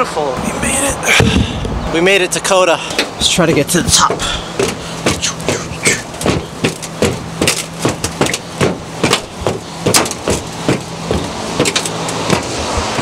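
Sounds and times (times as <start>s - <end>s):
footsteps on metal stairs: 2.8s - 13.0s.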